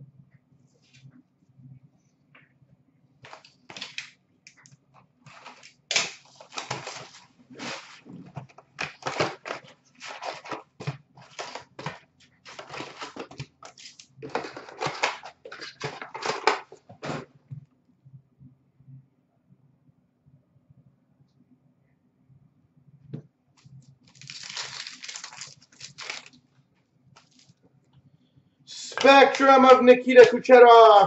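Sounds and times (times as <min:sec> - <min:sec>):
cardboard and packs rustling tearing: 0:05.3 - 0:17.2, 0:24.1 - 0:26.4, 0:27.2 - 0:27.5.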